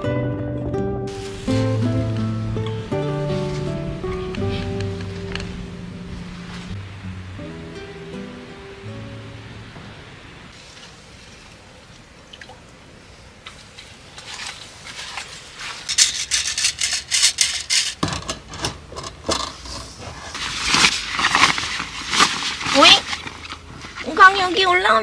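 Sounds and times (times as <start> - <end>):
faint steady hiss: 1.1 - 25.0
rustling and scraping of rod: 3.1 - 6.8, 13.4 - 24.7.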